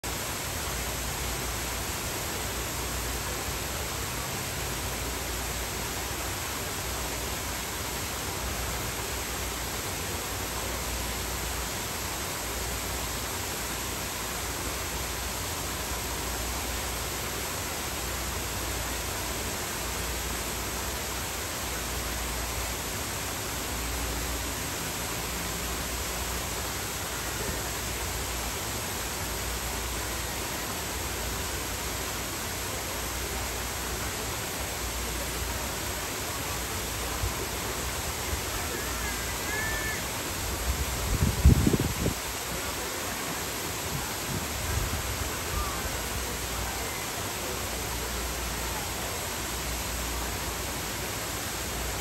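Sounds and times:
steady hiss: 0.0 - 52.0.

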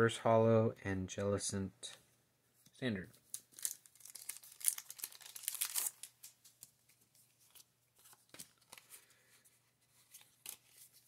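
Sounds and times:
trading cards rustling and clicking: 3.1 - 9.1, 9.9 - 11.0.

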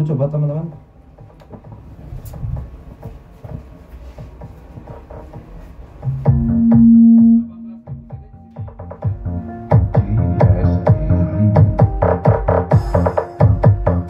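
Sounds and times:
dance music through speakers: 1.2 - 14.0
loud held bass note: 6.2 - 8.5.

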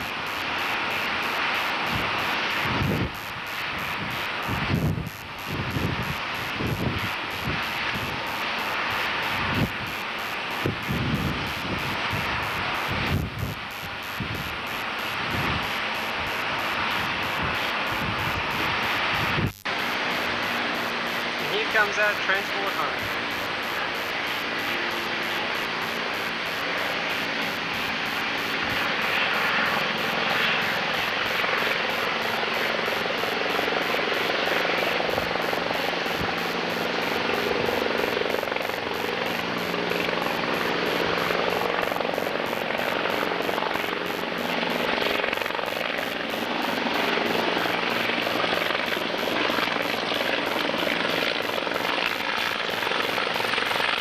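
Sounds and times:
helicopter flying: 0.0 - 54.0.

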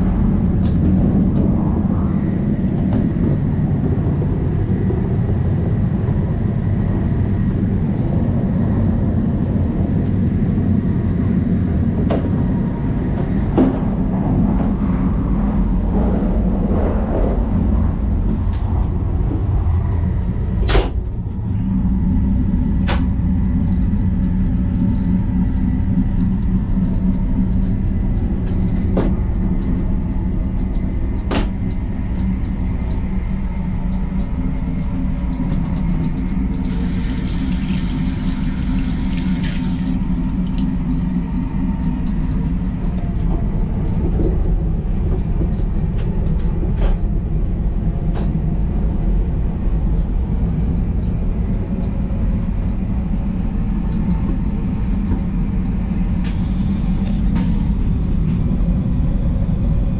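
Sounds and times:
train rumble: 0.0 - 59.9
tap water running onto hand: 36.6 - 40.6.

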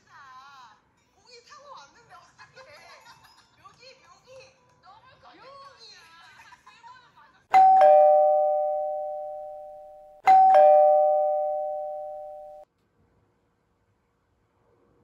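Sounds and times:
two-tone doorbell chime: 7.5 - 12.6.

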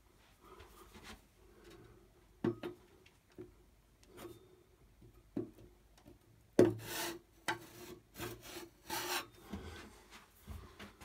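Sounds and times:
trowel scraping plasterboard: 6.7 - 9.8.

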